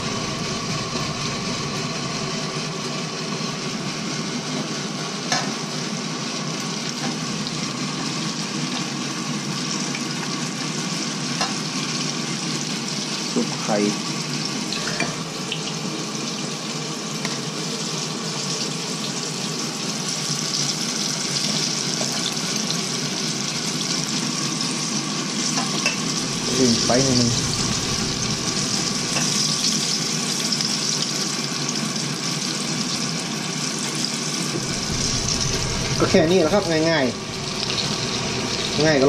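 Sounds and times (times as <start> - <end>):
chicken deep-frying in oil: 0.0 - 39.0
person speaking: 26.2 - 29.0.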